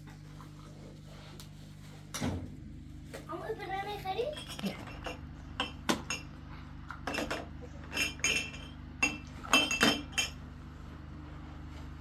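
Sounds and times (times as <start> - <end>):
steady low hum: 0.0 - 12.0
dishes and utensils clinking: 4.3 - 10.4.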